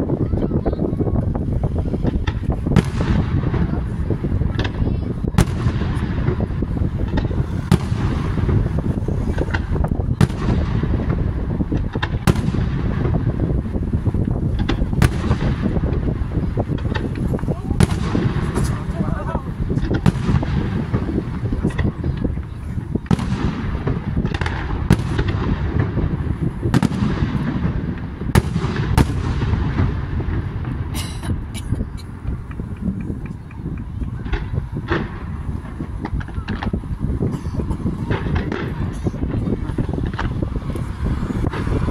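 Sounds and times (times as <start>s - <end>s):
low rumble of fireworks: 0.0s - 41.9s
firework shells bursting: 2.0s - 36.8s.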